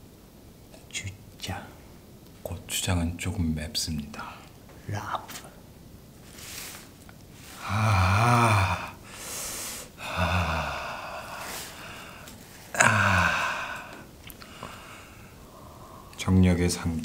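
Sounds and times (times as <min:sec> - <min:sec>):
breathy hiss: 0:04.1 - 0:05.6, 0:06.2 - 0:17.0.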